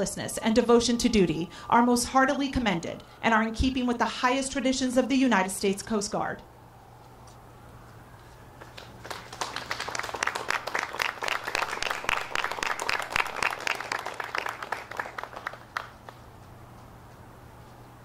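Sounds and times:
audience applauding: 0:08.6 - 0:16.2.

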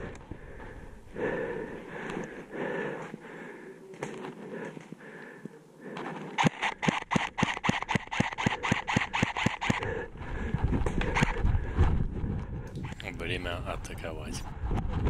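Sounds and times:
airsoft pistol firing rapidly: 0:06.4 - 0:09.9.

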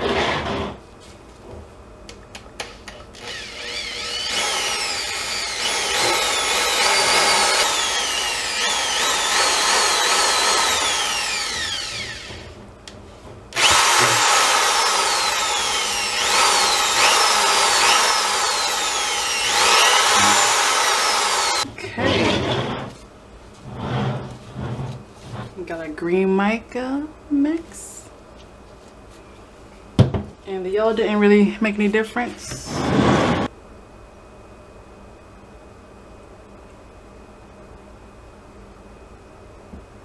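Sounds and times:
electric drill whining: 0:02.6 - 0:12.6, 0:13.6 - 0:22.9.

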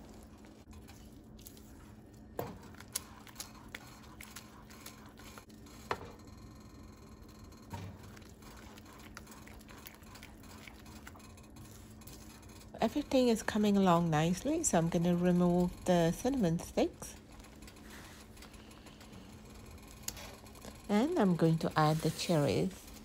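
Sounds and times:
soft squishing of noodles: 0:00.0 - 0:05.5, 0:08.0 - 0:12.7.

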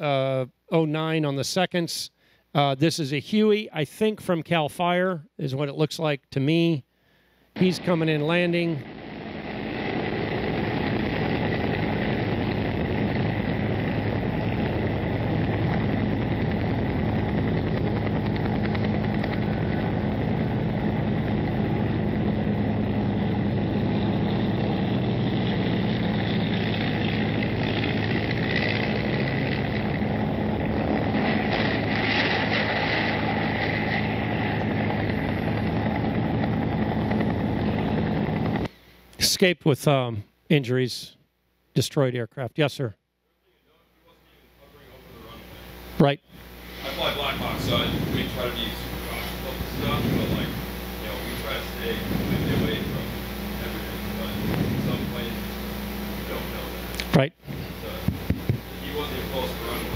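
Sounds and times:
mechanical drone: 0:07.6 - 0:38.7, 0:44.8 - 0:59.9.

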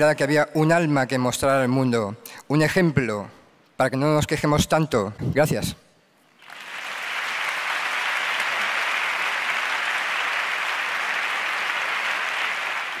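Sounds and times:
audience applauding: 0:06.4 - 0:13.0.

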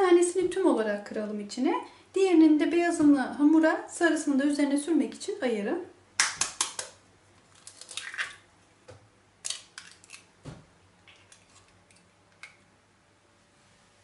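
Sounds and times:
eggshells clicking: 0:09.4 - 0:10.3.

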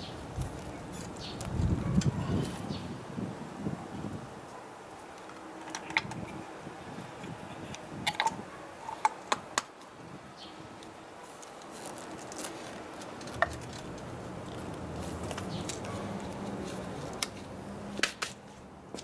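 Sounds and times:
rubber rubbing and rustling: 0:11.2 - 0:17.6.

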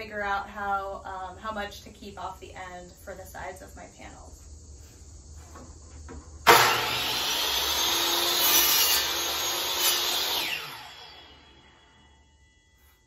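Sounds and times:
miter saw cutting wood: 0:06.4 - 0:12.2.

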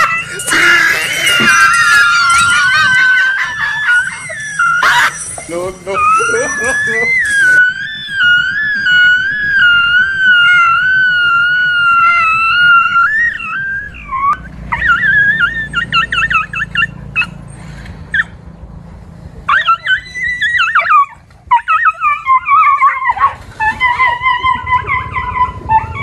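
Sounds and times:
dogs yelping and whining: 0:00.0 - 0:18.4, 0:19.4 - 0:26.0.

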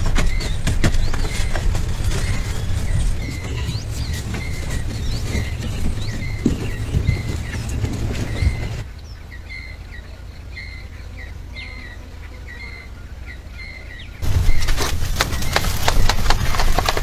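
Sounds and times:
small bird chirping: 0:00.0 - 0:17.0
hands working clay: 0:14.2 - 0:17.0.

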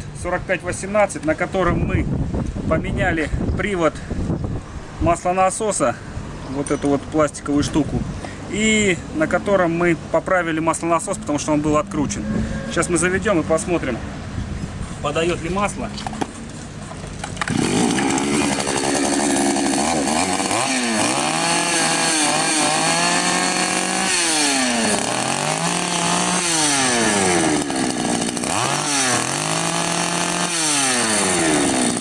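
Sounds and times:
two-stroke chainsaw revving: 0:17.4 - 0:32.0.

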